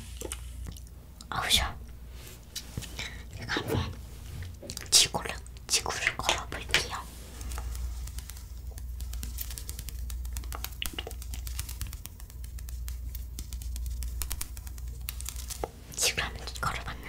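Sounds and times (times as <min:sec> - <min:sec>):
steady low hum: 0:00.0 - 0:17.0
foil wrapper crinkling: 0:07.4 - 0:15.8.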